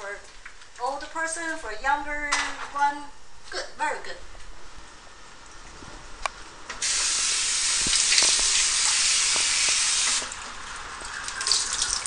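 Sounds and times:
faucet water running into bowl: 0:06.8 - 0:12.0.

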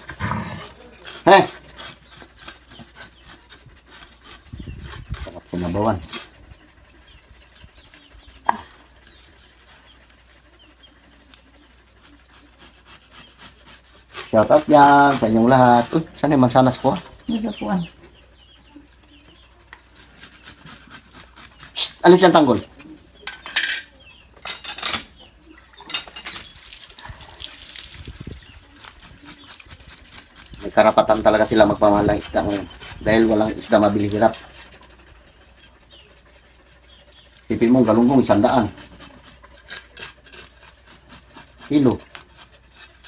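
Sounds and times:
cleaver scraping fish scales: 0:00.0 - 0:06.5, 0:07.1 - 0:17.1, 0:19.6 - 0:22.7, 0:23.3 - 0:43.0.

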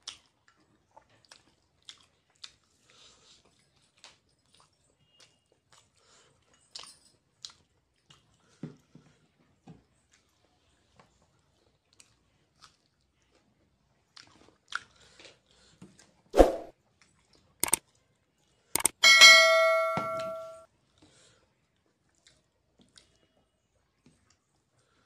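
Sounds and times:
sharp clicks: 0:18.8 - 0:19.0
metal bowl clanging on table: 0:19.0 - 0:20.6.

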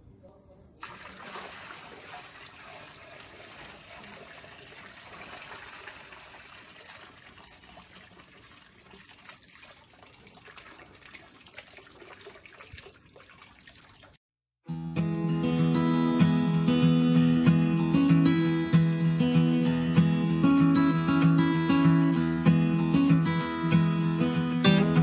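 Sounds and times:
water pouring and splashing: 0:00.8 - 0:14.2.

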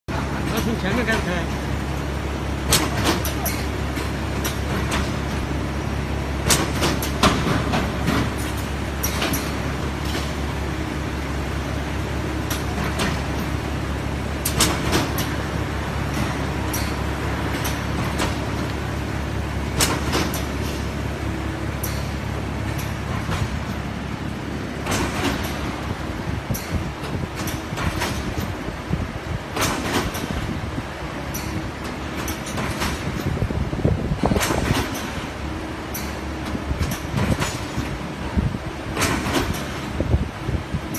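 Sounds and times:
sharp clicks and knocks: 0:02.6 - 0:05.4, 0:06.4 - 0:10.4, 0:14.4 - 0:15.4, 0:16.0 - 0:18.8, 0:19.7 - 0:20.9, 0:21.8 - 0:23.8, 0:24.8 - 0:25.9, 0:26.5 - 0:28.6, 0:29.5 - 0:30.5, 0:31.2 - 0:33.5, 0:34.2 - 0:35.3, 0:35.9 - 0:38.0, 0:39.0 - 0:40.0.

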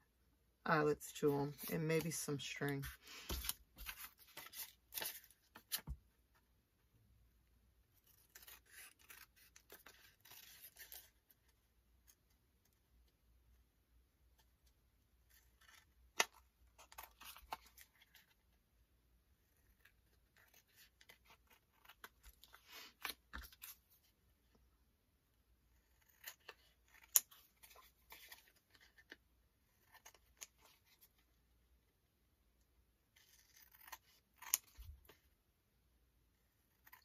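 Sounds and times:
scissors cutting card: 0:33.2 - 0:35.2.

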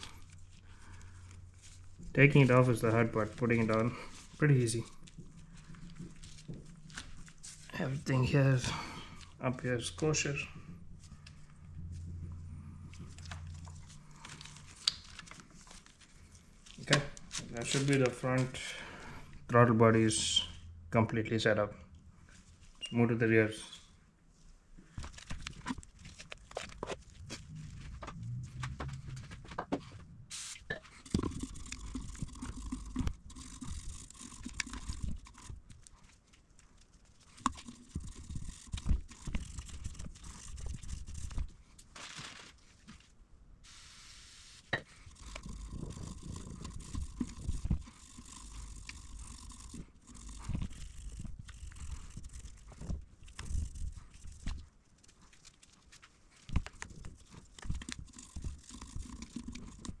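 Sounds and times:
gloved hands scraping and rustling: 0:00.0 - 0:19.4, 0:23.6 - 1:00.0
soft low bumps: 0:27.2 - 0:30.3.

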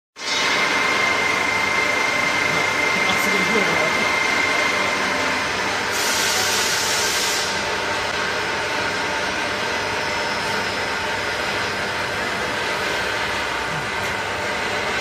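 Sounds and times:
frying machine running: 0:00.2 - 0:15.0
hiss: 0:05.9 - 0:07.6.

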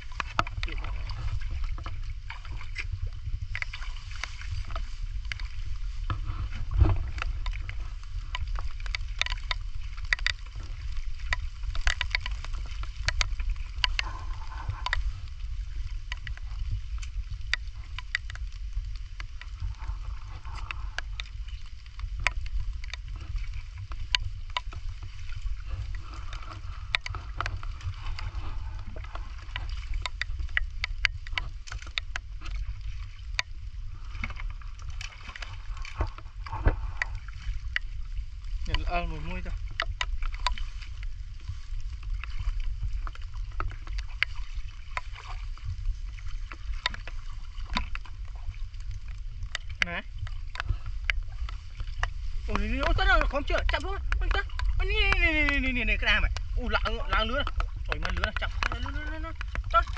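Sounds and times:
steady low rumble: 0:00.0 - 0:59.9
raindrops ticking: 0:07.0 - 0:59.9
footsteps splashing through water: 0:38.7 - 0:59.9.

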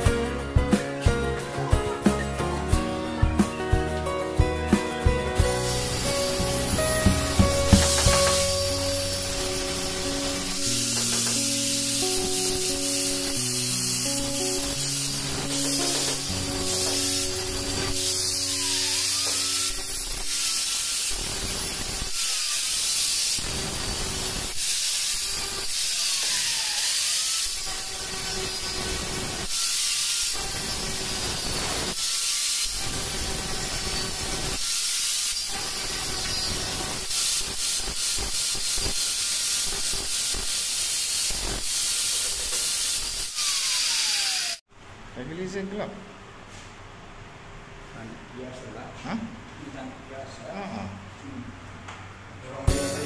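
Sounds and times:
angle grinder grinding tile: 0:05.5 - 0:44.6.

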